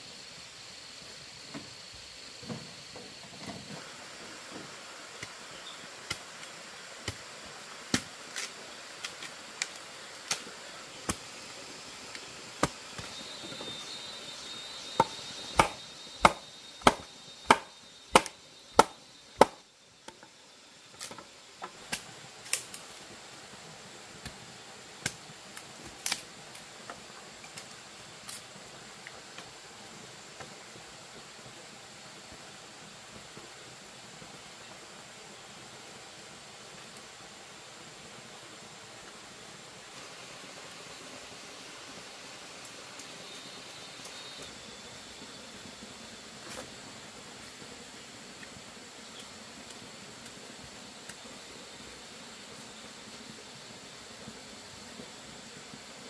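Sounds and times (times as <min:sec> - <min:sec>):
blade chopping: 0:15.0 - 0:19.6.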